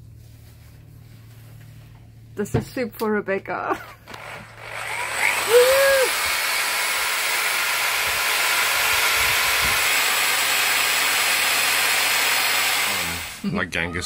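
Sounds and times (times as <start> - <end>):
electric drill spinning blender blades: 4.1 - 13.4.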